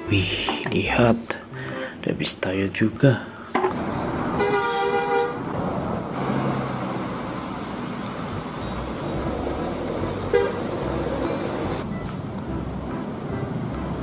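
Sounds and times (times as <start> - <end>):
buses driving past: 3.3 - 14.0
vehicle horn: 4.4 - 5.4, 10.3 - 10.7.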